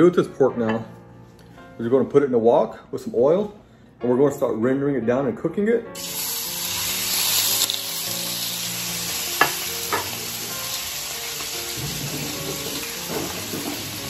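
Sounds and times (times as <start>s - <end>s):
pork sizzling in hot oil: 6.0s - 14.0s.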